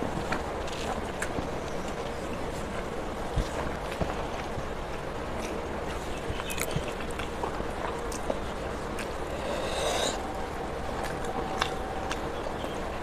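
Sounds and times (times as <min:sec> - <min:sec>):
steady background hiss: 0:00.0 - 0:13.0
chewing and mouth clicks: 0:03.4 - 0:12.9
fingers mixing rice on steel plate: 0:08.8 - 0:10.4.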